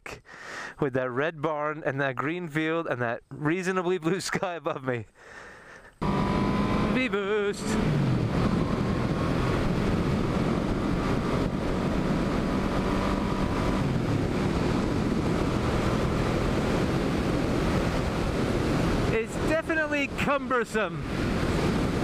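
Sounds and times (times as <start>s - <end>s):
motorcycle engine running: 6.0s - 19.1s
wind rushing over microphone: 6.0s - 22.0s.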